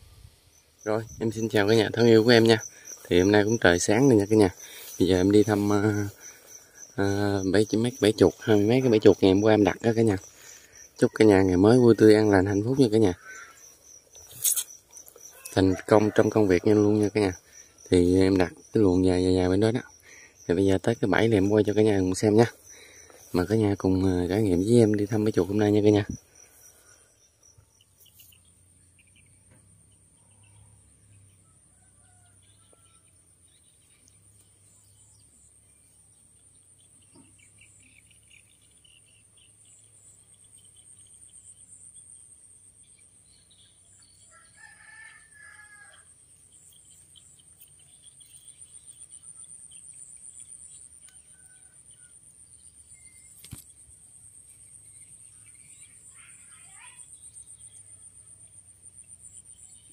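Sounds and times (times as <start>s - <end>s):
faint bird chirps: 0.0s - 59.9s
high insect drone: 0.0s - 59.9s
rooster crowing: 15.2s - 17.4s, 31.4s - 33.1s, 44.3s - 46.1s.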